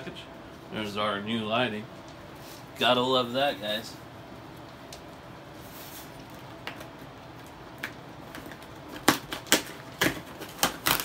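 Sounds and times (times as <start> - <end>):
cardboard box tearing open: 9.0 - 11.0.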